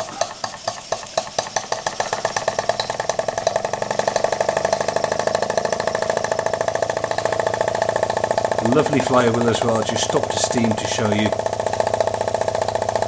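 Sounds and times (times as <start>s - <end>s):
model steam engine chuffing: 0.0s - 13.0s.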